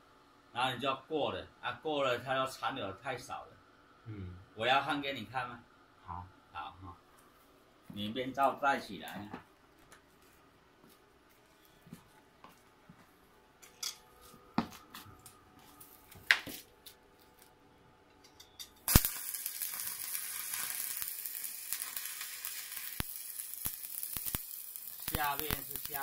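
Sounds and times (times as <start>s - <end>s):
welding arc crackling: 18.8s - 26.0s.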